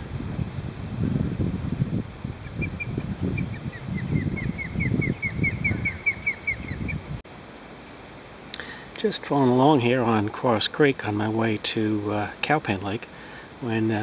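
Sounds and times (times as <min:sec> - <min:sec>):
wind buffeting microphone: 0:00.0 - 0:07.2
osprey whistled chirps: 0:02.6 - 0:07.0.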